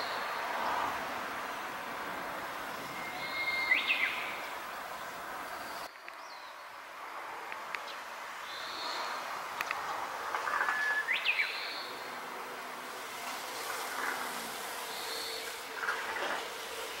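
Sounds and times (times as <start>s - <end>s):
faint bird chirps: 2.8s - 4.5s.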